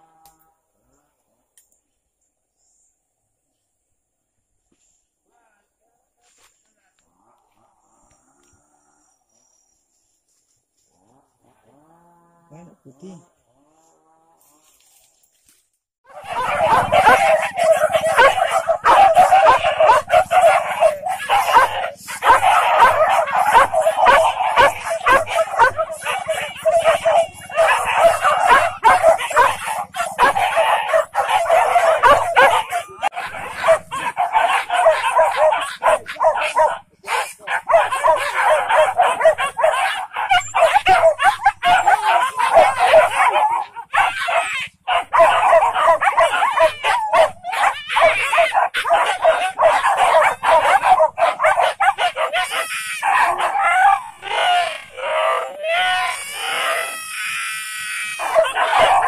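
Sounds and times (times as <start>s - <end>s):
dogs barking and yelping: 16.1s - 59.0s.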